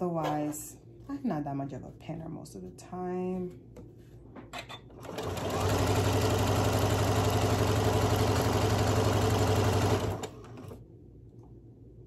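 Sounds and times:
sewing machine stitching: 5.0 - 10.8.

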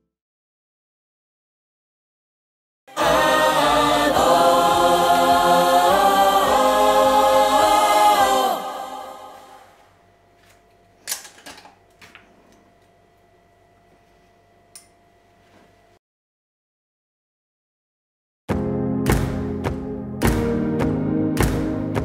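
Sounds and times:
choir singing sustained chord: 2.9 - 9.8.

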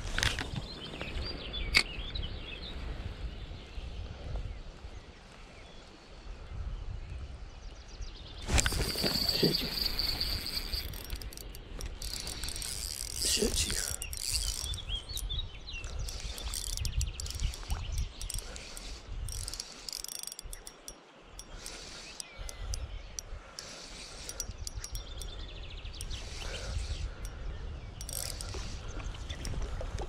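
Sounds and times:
low rumble of wind: 0.0 - 30.0
fishing reel clicking: 8.5 - 25.4, 28.0 - 28.8.

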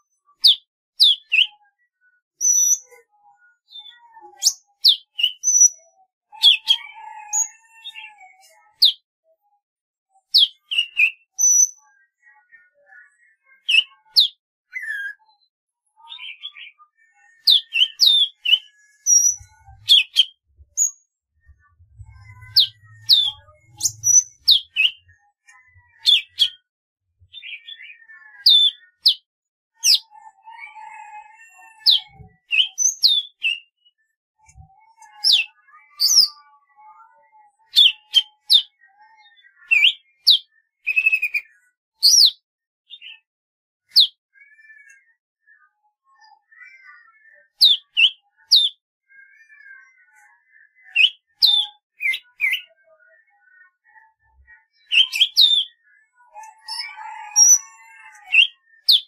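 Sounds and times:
bird singing whistled notes: 17.4 - 26.6, 30.8 - 36.4.

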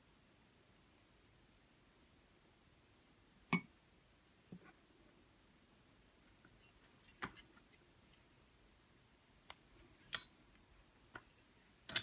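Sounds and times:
faint clicks and taps: 6.2 - 8.3, 9.4 - 12.0.

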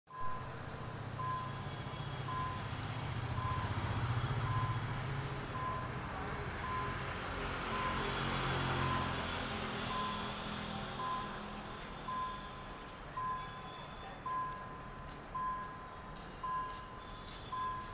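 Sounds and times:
short electronic beeps: 0.1 - 0.6, 1.2 - 2.8, 3.4 - 4.9, 5.5 - 6.0, 6.6 - 7.0, 7.7 - 8.2, 9.9 - 10.4, 11.0 - 17.9
engine rumbling: 0.1 - 17.9.

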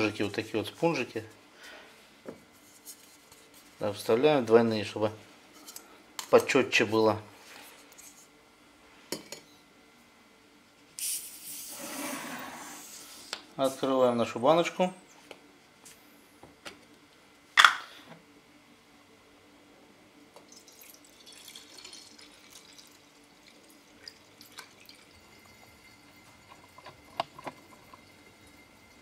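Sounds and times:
liquid trickling and dripping: 20.4 - 29.0.

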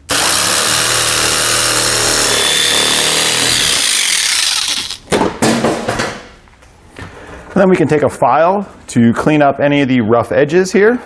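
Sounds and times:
power tool cutting plastic: 0.0 - 5.0
sharp knocks: 5.1 - 6.3.

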